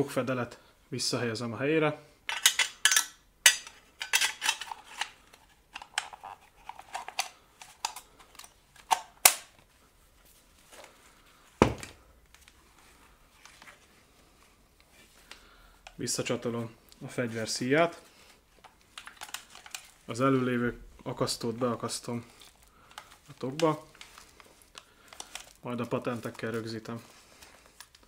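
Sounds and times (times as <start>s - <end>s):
metal gun parts clicking and rattling: 2.3s - 9.6s, 18.6s - 20.1s, 25.1s - 26.6s.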